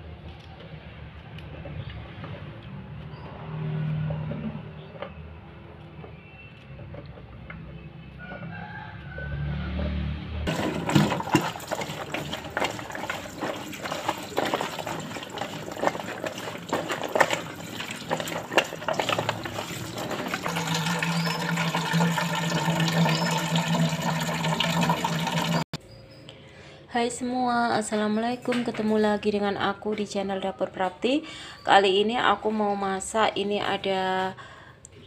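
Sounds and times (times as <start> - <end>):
tap water splashing on beans: 10.5 - 25.6
water filling metal saucepan: 10.5 - 25.7.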